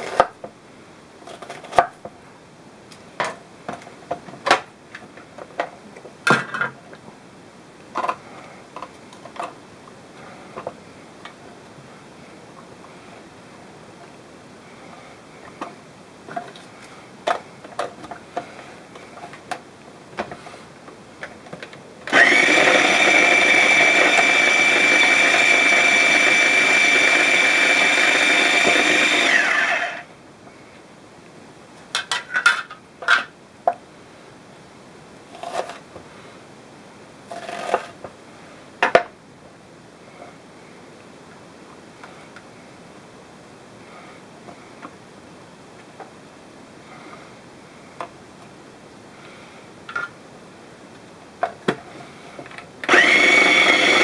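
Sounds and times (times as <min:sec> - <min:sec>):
food chopper motor humming: 0:22.1 - 0:30.0, 0:52.8 - 0:54.0.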